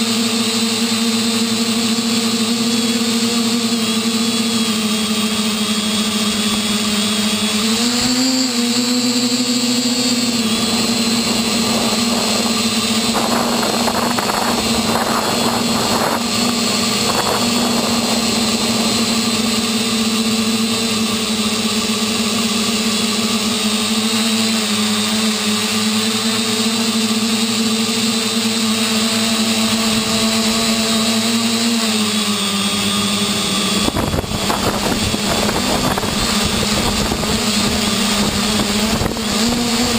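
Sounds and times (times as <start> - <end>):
quadcopter motors whining: 0.0 - 39.9
wind buffeting microphone: 9.9 - 21.0, 33.3 - 39.9.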